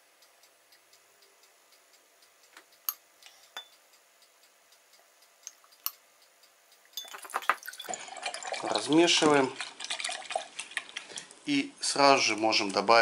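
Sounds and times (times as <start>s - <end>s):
glass jar clicking on glass rim: 7.0s - 7.9s.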